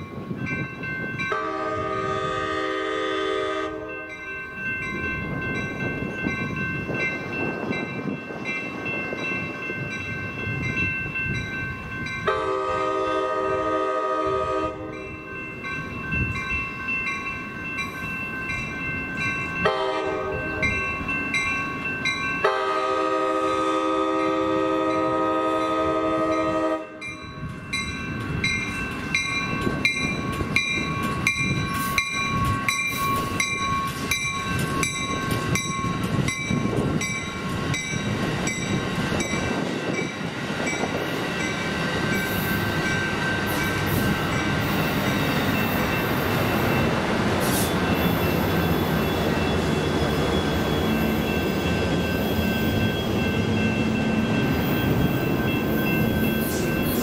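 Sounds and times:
rumble of passing train cars: 0:00.0 - 0:57.0
train horn: 0:01.3 - 0:04.0, 0:12.2 - 0:15.1, 0:19.6 - 0:20.7, 0:22.4 - 0:27.2
bell ringing: 0:03.9 - 0:12.3, 0:14.9 - 0:22.7, 0:27.0 - 0:47.0, 0:47.8 - 0:57.0.

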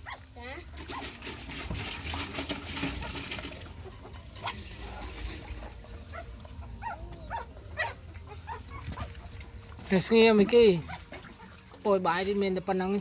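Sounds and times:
dog chewing and lapping: 0:06.8 - 0:12.7.

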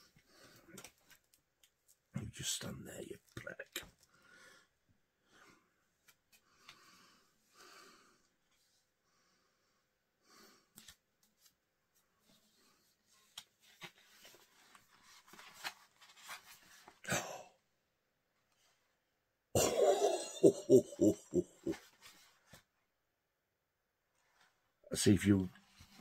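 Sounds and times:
man coughing hard: 0:19.6 - 0:21.4.

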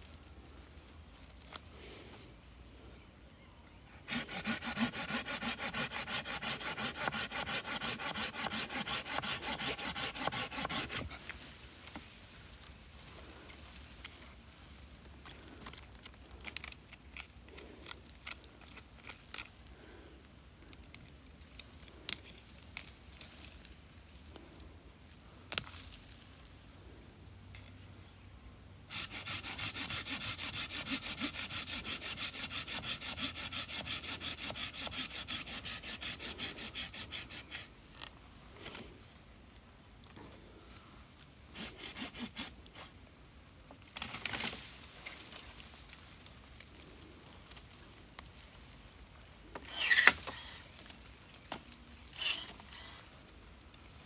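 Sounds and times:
hand saw cutting wood: 0:04.1 - 0:11.4, 0:28.9 - 0:37.7, 0:41.5 - 0:43.0, 0:49.6 - 0:50.6, 0:52.1 - 0:53.1.

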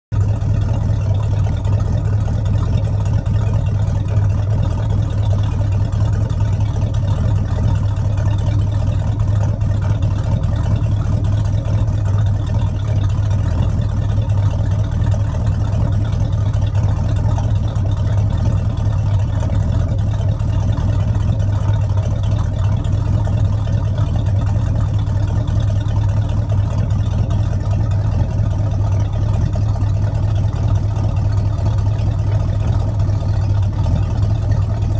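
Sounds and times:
boat engine idling: 0:00.1 - 0:34.9.

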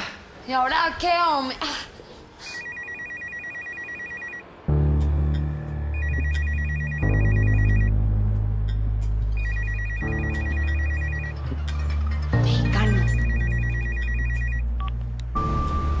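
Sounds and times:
telephone ringing electronic trill: 0:02.6 - 0:04.4, 0:06.0 - 0:07.9, 0:09.4 - 0:11.6, 0:12.8 - 0:14.7
music with deep bass: 0:04.7 - 0:16.0.

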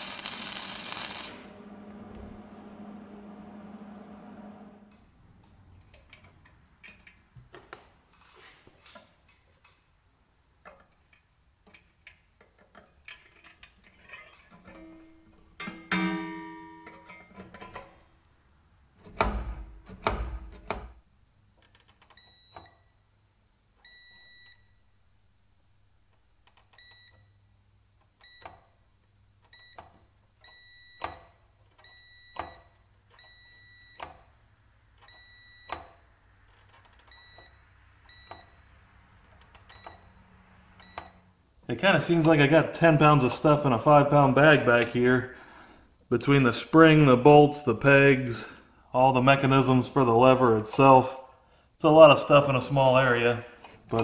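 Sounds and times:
low thumps: 0:01.4 - 0:05.2
small metal clicks and clatter: 0:10.6 - 0:14.8
spring twang: 0:15.6 - 0:17.0
multimeter continuity beeps: 0:23.9 - 0:24.7, 0:26.7 - 0:27.3, 0:29.5 - 0:34.1, 0:35.0 - 0:36.0, 0:37.0 - 0:38.6.

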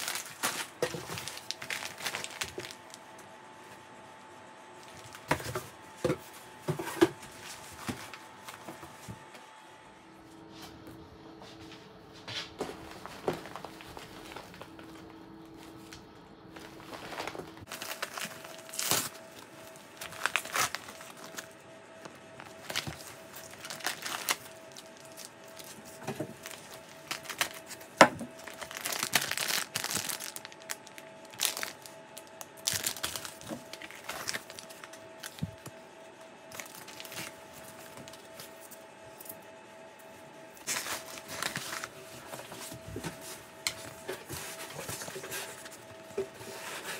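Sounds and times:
paper bag handled: 0:00.0 - 0:03.0, 0:12.7 - 0:35.8, 0:36.5 - 0:38.7, 0:40.6 - 0:46.9
plastic packaging crinkling: 0:00.0 - 0:03.2, 0:12.9 - 0:35.8, 0:36.5 - 0:39.3, 0:40.6 - 0:46.9.

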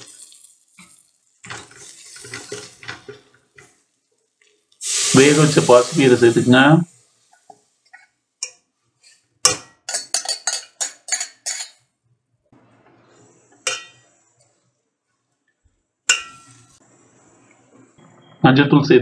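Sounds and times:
ladle clinking in pot: 0:09.4 - 0:11.8, 0:13.6 - 0:14.1, 0:16.1 - 0:16.8.

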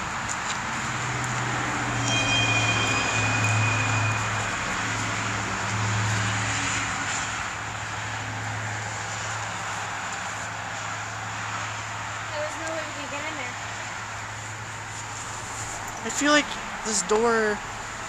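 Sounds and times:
distant engine drone: 0:01.6 - 0:08.6.

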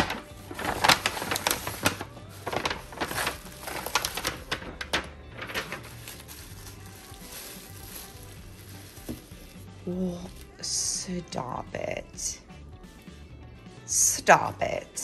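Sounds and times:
packaging crackling and rustling: 0:00.0 - 0:10.6.

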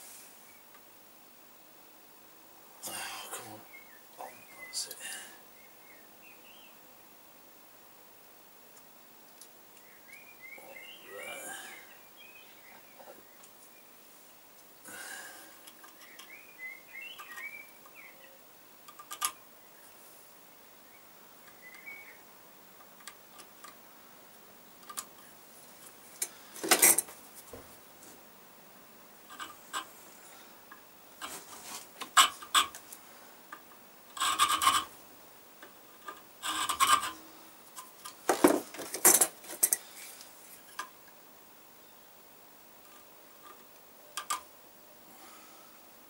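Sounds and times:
faint bird chirps: 0:03.3 - 0:06.8, 0:09.7 - 0:14.0, 0:15.8 - 0:18.5, 0:20.6 - 0:22.3.

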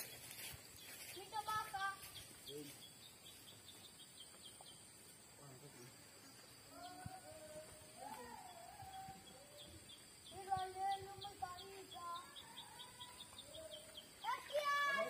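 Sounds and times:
drawn-out bird calls: 0:06.3 - 0:15.0.

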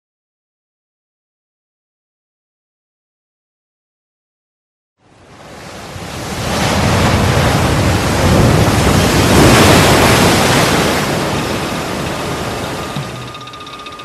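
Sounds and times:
rushing wind-like noise: 0:05.0 - 0:14.0.

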